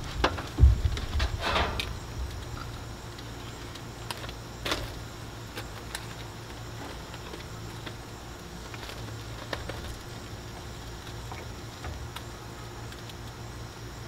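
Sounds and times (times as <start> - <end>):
steady low hum: 0.0 - 14.0
grill tongs clicking and scraping: 1.2 - 7.9.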